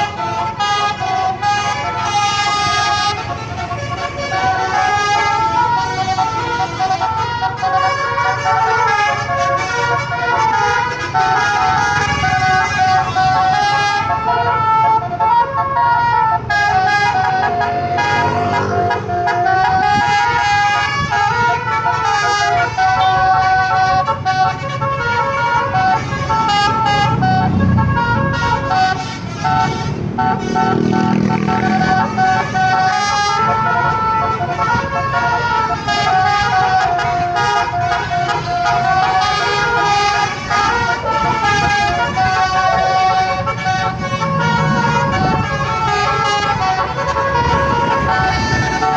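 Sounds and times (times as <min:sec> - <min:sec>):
truck engine rumble: 0:00.0 - 0:48.9
multi-tone musical horn tune: 0:16.4 - 0:48.9.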